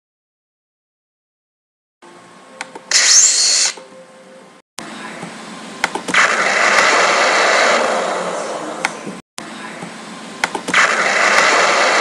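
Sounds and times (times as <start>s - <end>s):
loud hissing burst: 2.9s - 3.8s
cartoon explosion: 10.8s - 12.0s.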